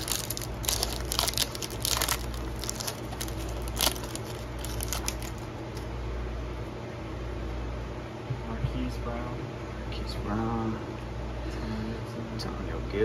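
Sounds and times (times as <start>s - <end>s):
foil wrapper crinkling: 0.0s - 5.9s
steady low hum: 0.0s - 13.0s.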